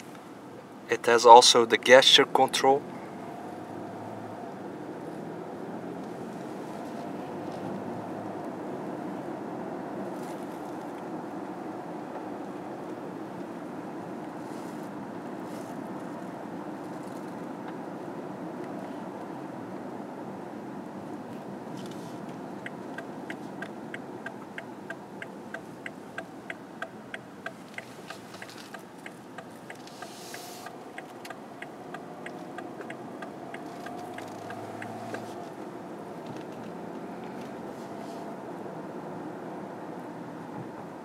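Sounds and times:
car engine and tyres: 0:00.0 - 0:41.0
turn signal ticking: 0:21.8 - 0:37.6.

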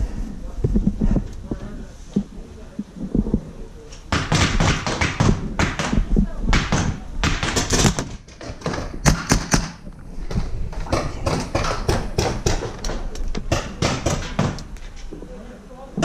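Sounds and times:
paintball gun shots popping: 0:06.6 - 0:09.8.

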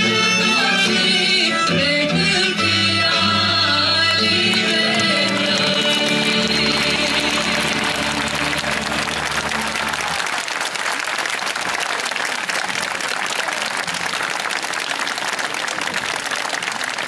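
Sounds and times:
audience applauding: 0:04.4 - 0:17.0.

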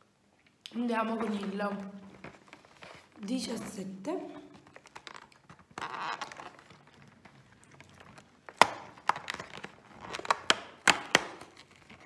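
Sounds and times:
cardboard rustling: 0:01.2 - 0:03.6, 0:04.5 - 0:12.0
cardboard tearing open: 0:07.9 - 0:12.0.

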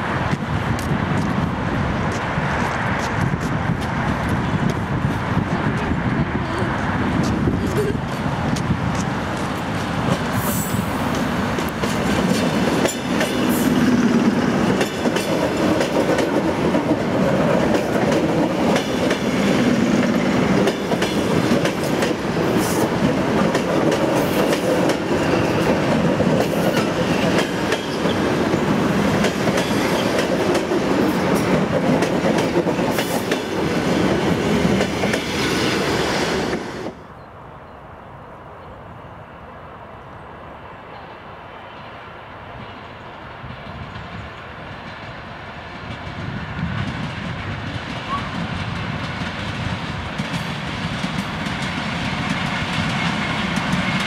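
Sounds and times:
train running past: 0:00.0 - 0:54.0
wheels clicking over rail joints: 0:11.0 - 0:35.3.

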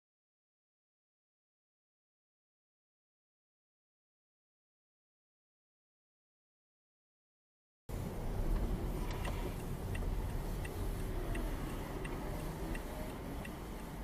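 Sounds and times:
car interior low rumble: 0:07.9 - 0:14.0
turn signal ticking: 0:07.9 - 0:14.0.

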